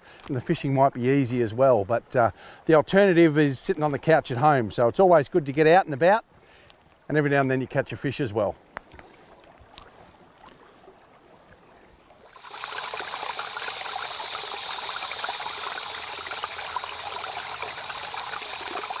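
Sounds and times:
rush of flowing water: 12.2s - 19.0s.

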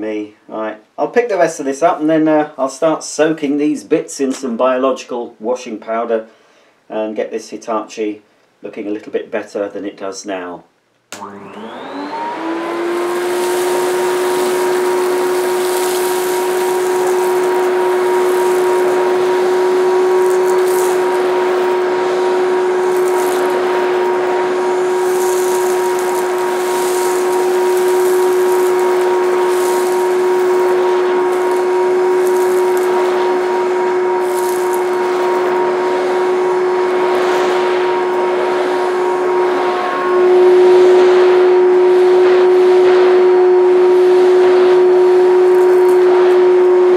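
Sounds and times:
vacuum cleaner motor whine: 11.1s - 46.9s
grit crackling in vacuum: 11.8s - 46.9s.

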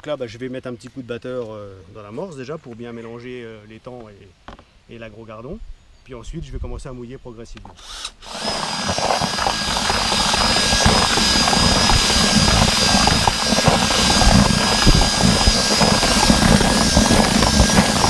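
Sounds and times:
cordless drill whining: 7.8s - 18.0s
dry mix rustling in bucket: 8.4s - 18.0s.

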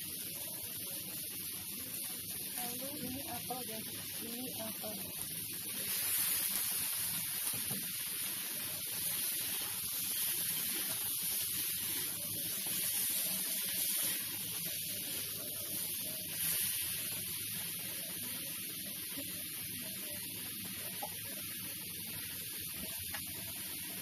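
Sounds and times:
food sizzling in a wok: 0.0s - 24.0s
metal spatula stir-frying: 2.1s - 24.0s.

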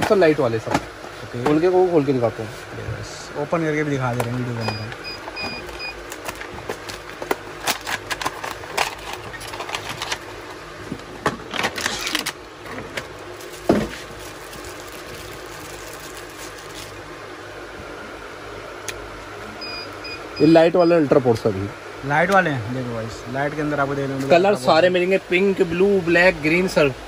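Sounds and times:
packaging clicks and rustles: 4.0s - 10.5s, 11.3s - 17.1s.

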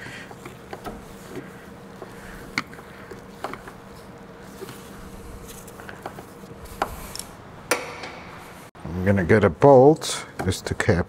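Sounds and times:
hand tools clicking and scraping: 0.0s - 8.1s
steady low hum: 0.0s - 10.9s.

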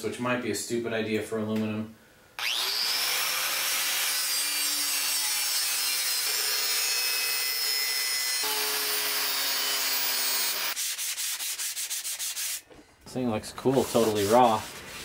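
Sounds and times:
hand sanding strokes: 10.0s - 12.7s, 13.6s - 15.0s.

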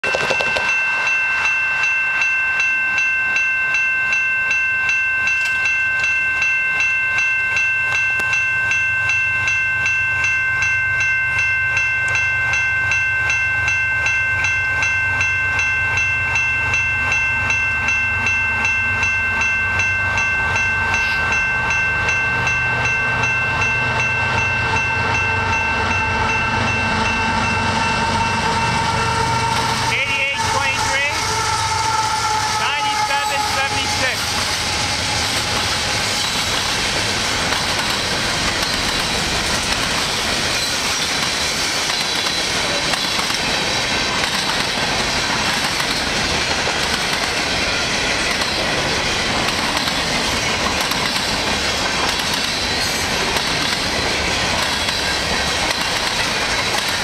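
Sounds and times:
level crossing bell ringing: 0.0s - 29.1s
diesel locomotive rumble: 14.5s - 57.0s.

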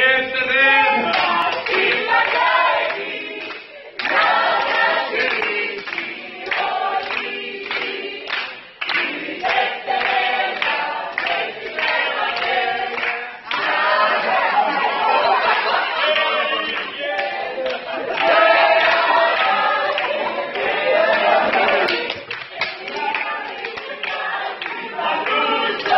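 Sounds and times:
group singing a cappella: 0.0s - 25.9s
hand claps: 1.1s - 13.9s, 16.4s - 25.9s.

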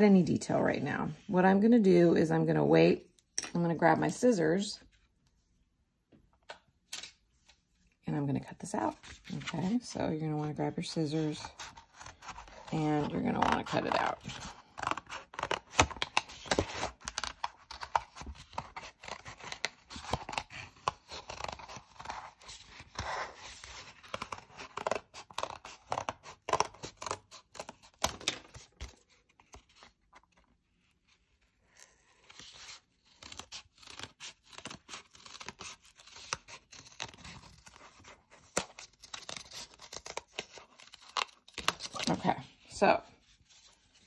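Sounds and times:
scissors cutting paper: 10.4s - 29.7s, 31.8s - 42.5s.

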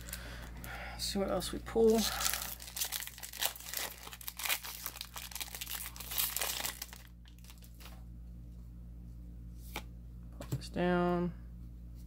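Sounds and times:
foil wrapper tearing and crinkling: 1.8s - 8.0s.

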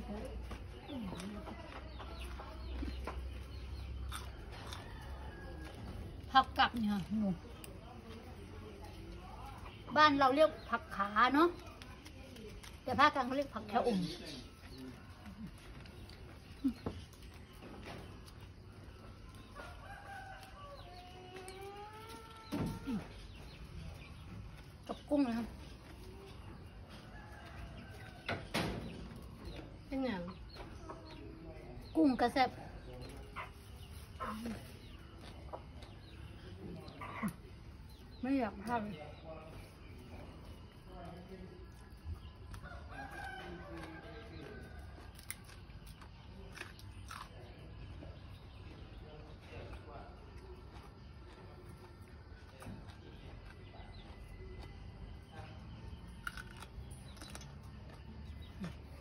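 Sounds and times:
rooster crowing: 42.6s - 44.6s.

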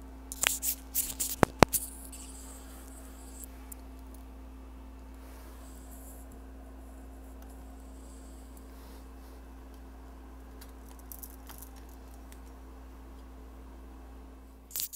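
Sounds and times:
low electrical hum: 0.0s - 14.9s
device handling clicks and rustles: 0.3s - 2.3s, 10.5s - 12.6s.

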